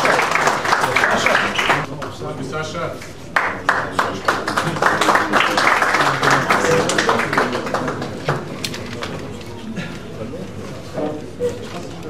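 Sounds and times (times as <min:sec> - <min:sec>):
audience applauding: 0:00.0 - 0:02.1, 0:03.4 - 0:08.7.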